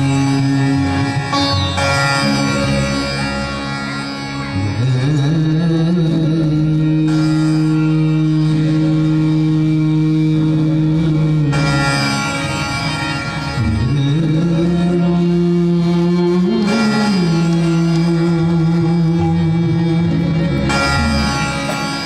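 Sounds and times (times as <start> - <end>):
devotional music accompaniment: 0.0 - 22.0.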